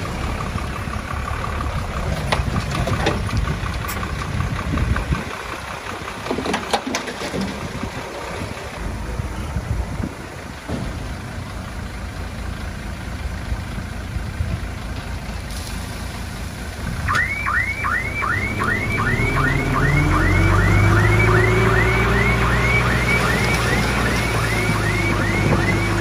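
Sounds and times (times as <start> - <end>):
diesel engine running: 0.0 - 26.0
reversing alarm chirps: 17.1 - 26.0.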